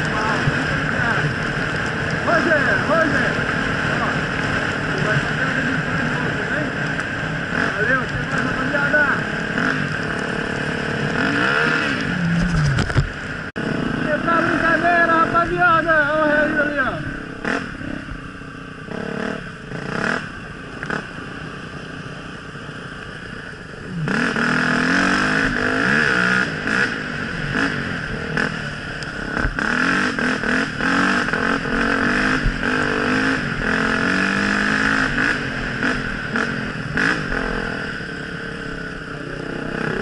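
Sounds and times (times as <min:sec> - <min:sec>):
knocks and clatter on rough trail: 0:00.0 - 0:13.2
dirt bike engine revving: 0:00.0 - 0:40.0.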